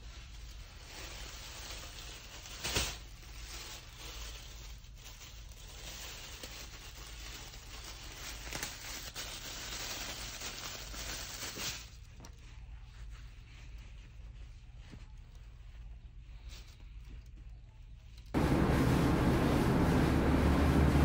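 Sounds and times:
plastic bag crinkling: 0:00.0 - 0:12.5.

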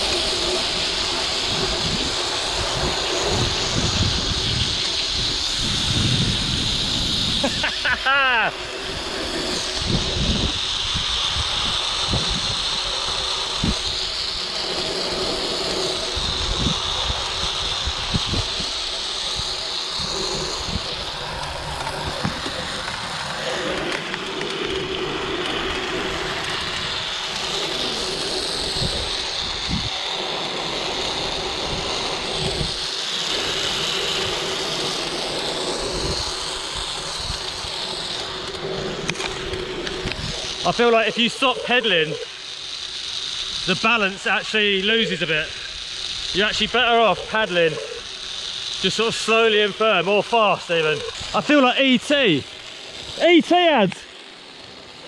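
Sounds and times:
wind rumbling on microphone: 0:00.0 - 0:08.0, 0:08.6 - 0:41.7
bicycle whirring along cable: 0:00.0 - 0:55.0.

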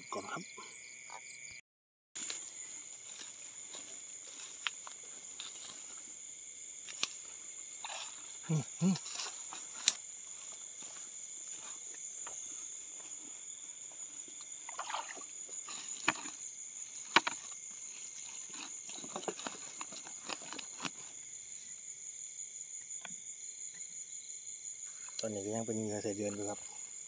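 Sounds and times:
night insects chirring: 0:00.0 - 0:01.6, 0:02.2 - 0:27.0
footsteps through wet grass: 0:02.2 - 0:21.2.

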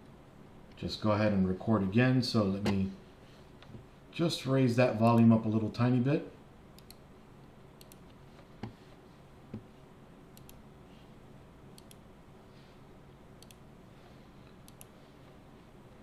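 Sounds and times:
quiet low hum: 0:00.0 - 0:16.0
mouse clicks: 0:06.8 - 0:07.0, 0:07.8 - 0:08.2, 0:10.4 - 0:10.6, 0:11.8 - 0:12.0, 0:13.4 - 0:13.6, 0:14.6 - 0:14.9.

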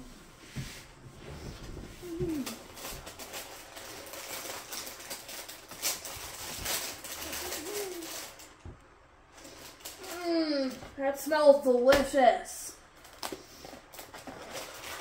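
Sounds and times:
person humming: 0:02.0 - 0:02.6, 0:07.3 - 0:08.3, 0:10.0 - 0:10.9
plastic bag crinkling: 0:02.3 - 0:08.7, 0:09.3 - 0:10.9, 0:12.9 - 0:15.0.

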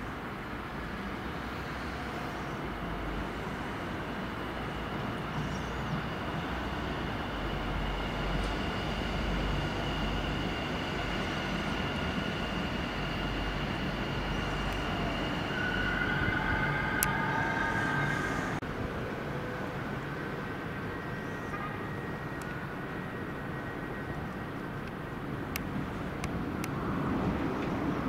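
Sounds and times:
train rumble with high whine: 0:00.0 - 0:28.0
higher whining tones: 0:04.5 - 0:18.6.

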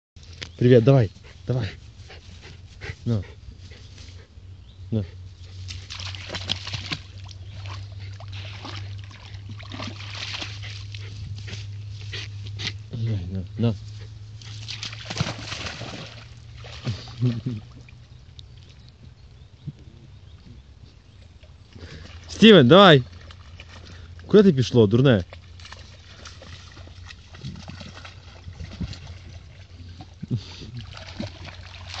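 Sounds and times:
dog splashing in water: 0:05.6 - 0:11.8, 0:14.4 - 0:17.8, 0:25.3 - 0:32.0.

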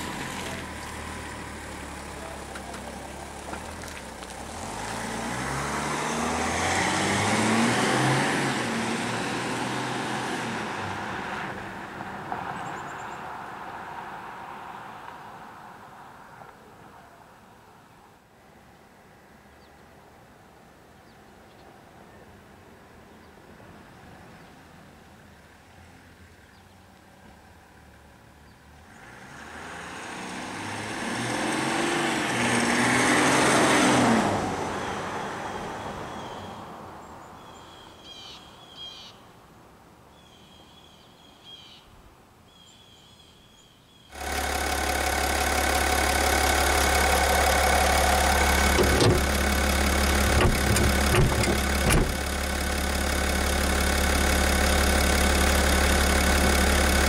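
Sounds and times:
diesel engine droning: 0:00.0 - 0:12.8, 0:44.1 - 0:57.0
diesel truck driving past: 0:04.1 - 0:14.8, 0:44.1 - 0:57.0
thumps: 0:48.7 - 0:49.5, 0:50.2 - 0:52.3.

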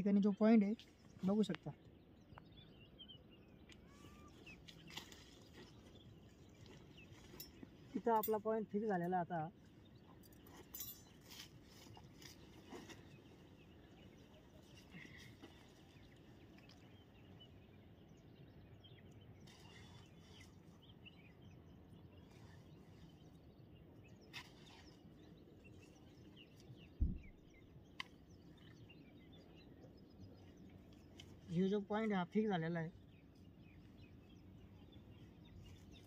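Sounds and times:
faint bird chirps: 0:00.0 - 0:08.0
brief low thump: 0:27.0 - 0:27.4.

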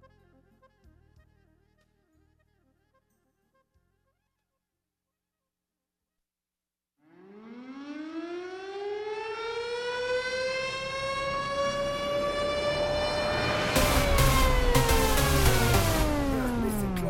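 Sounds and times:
air-raid siren winding up: 0:07.1 - 0:17.0.

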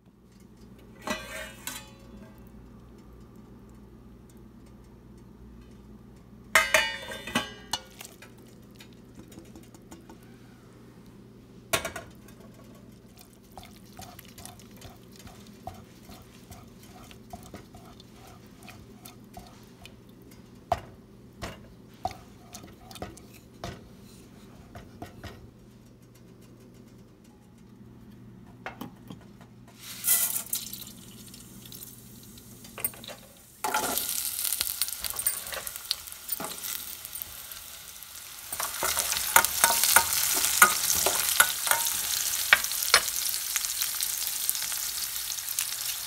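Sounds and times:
metallic clatter of steel pans: 0:00.3 - 0:02.5, 0:06.6 - 0:10.0, 0:38.5 - 0:43.1.

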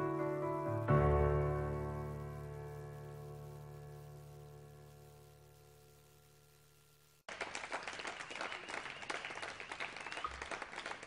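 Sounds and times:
crowd applauding: 0:07.3 - 0:11.0.

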